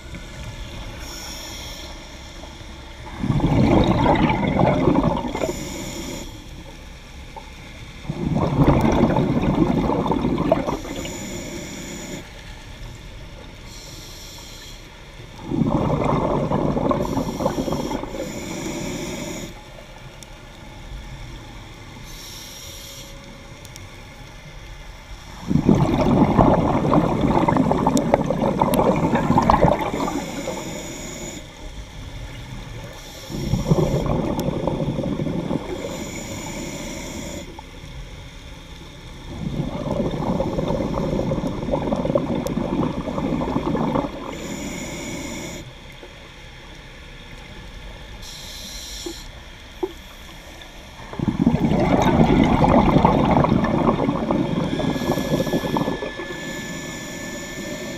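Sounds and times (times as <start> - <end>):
exhaled bubbles underwater: 0.0 - 13.8, 15.2 - 20.1, 24.4 - 38.0, 39.0 - 46.3, 47.3 - 57.9
regulator inhalation hiss: 13.7 - 14.9, 17.0 - 19.6, 33.0 - 34.1, 35.7 - 37.6, 44.2 - 45.7, 54.3 - 57.9.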